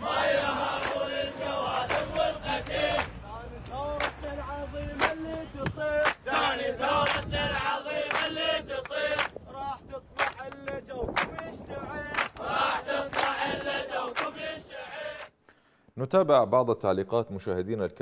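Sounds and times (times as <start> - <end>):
crowd chanting: 0.0 - 3.2, 3.8 - 9.3, 12.3 - 15.3
man leading a chant: 3.2 - 6.5, 9.5 - 12.4.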